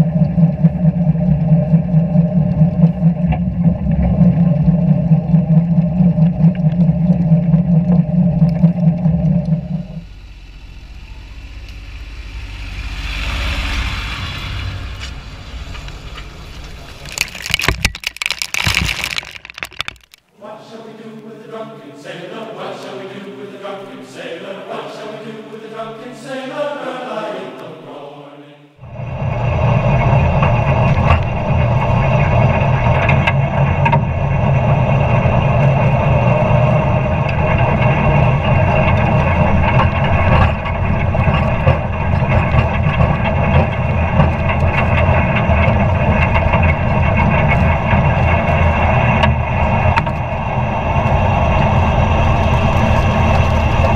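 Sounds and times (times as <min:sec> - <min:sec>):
muffled wavering tones: 0:00.0 - 0:11.7
tractor diesel engine running: 0:28.8 - 0:53.9.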